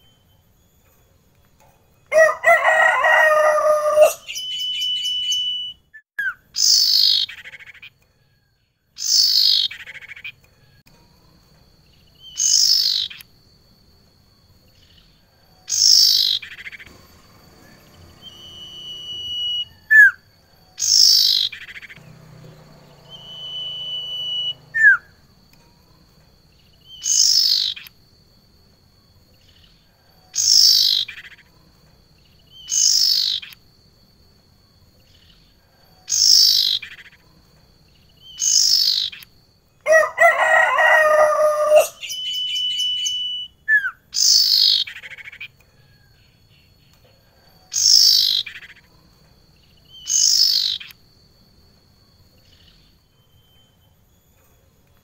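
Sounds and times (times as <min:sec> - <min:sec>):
bird calling: 0:02.1 - 0:08.0, 0:15.6 - 0:25.3, 0:32.4 - 0:33.6, 0:38.1 - 0:39.3, 0:39.9 - 0:45.6, 0:49.8 - 0:51.0
harsh bird call: 0:02.2 - 0:07.9, 0:15.7 - 0:20.2, 0:20.8 - 0:25.2, 0:39.9 - 0:45.4
bird whistles: 0:03.1 - 0:07.9, 0:15.7 - 0:20.2, 0:20.8 - 0:22.0, 0:22.9 - 0:25.2, 0:32.5 - 0:33.6, 0:38.2 - 0:39.2, 0:41.3 - 0:45.4, 0:49.9 - 0:50.9.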